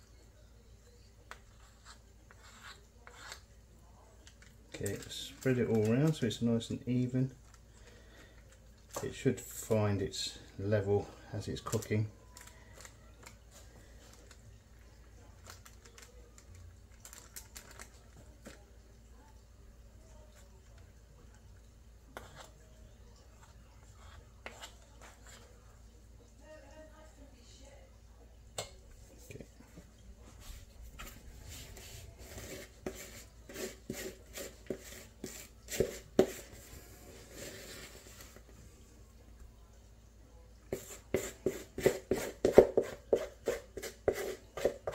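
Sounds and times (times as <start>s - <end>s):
spoon scraping cake mixture: 0.8s - 7.7s, 22.1s - 25.8s, 28.6s - 38.5s, 40.6s - 44.9s.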